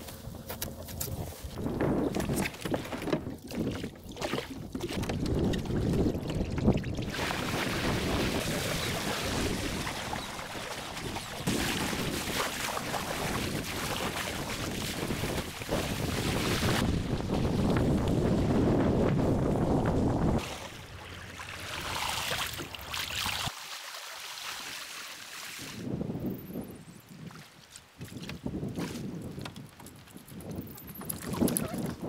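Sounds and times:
wind buffeting microphone: 0.2 - 21.0
water splashing along boat hull: 0.3 - 25.8, 27.3 - 32.0.

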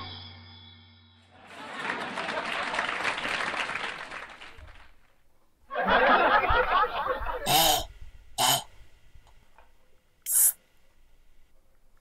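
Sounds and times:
crowd applauding: 1.4 - 5.2.

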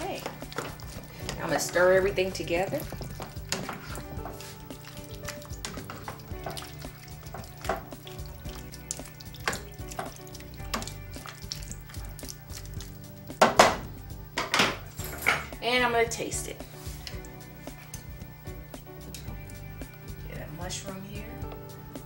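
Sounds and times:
spoon scraping frying pan: 0.0 - 12.0
knock on pan: 13.4 - 15.5.

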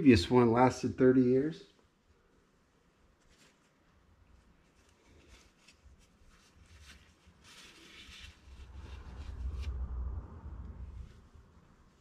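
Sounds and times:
hands rustling and scraping: 3.1 - 12.0
low rumble: 8.4 - 12.0.

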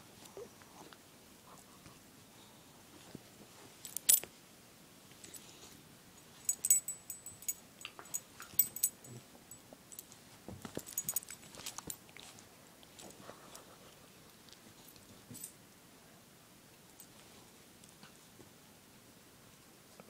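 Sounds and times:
collar tag jingling: 6.2 - 12.0.

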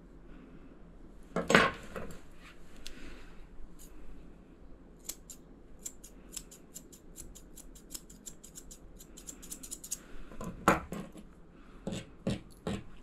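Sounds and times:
scissors snipping fur: 5.0 - 10.0.

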